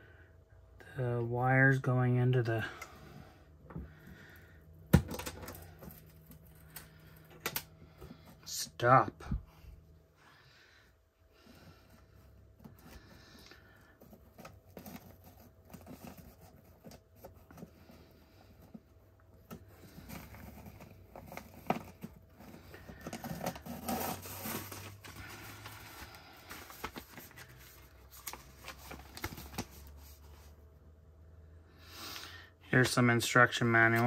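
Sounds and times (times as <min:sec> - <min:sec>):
packaging crinkling and rustling: 0:19.4 - 0:30.5.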